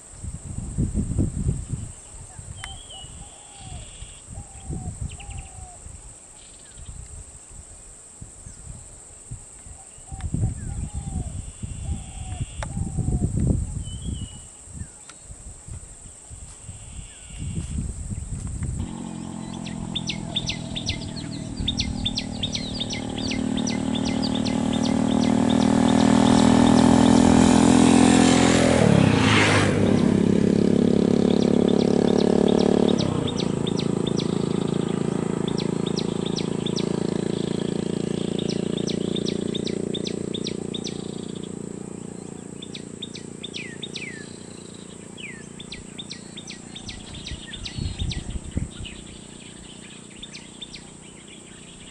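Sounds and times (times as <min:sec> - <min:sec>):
birds chirping: 0:01.9 - 0:07.0, 0:09.6 - 0:51.9
vehicle driving past: 0:18.8 - 0:48.4.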